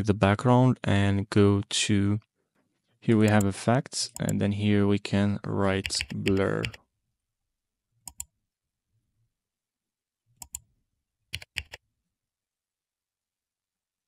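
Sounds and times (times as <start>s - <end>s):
computer mouse clicks: 3.2s - 3.5s, 5.8s - 6.8s, 8.1s - 8.3s, 10.4s - 10.6s, 11.3s - 11.8s.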